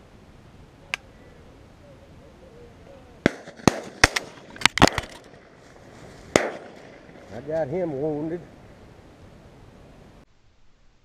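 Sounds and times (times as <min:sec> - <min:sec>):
shotgun fire: 0:03.2 - 0:05.6, 0:06.3 - 0:07.4.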